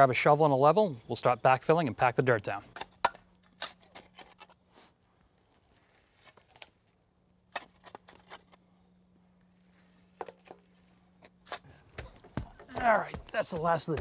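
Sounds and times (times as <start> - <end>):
shovel scraping soil: 7.5 - 8.6, 9.9 - 11.8.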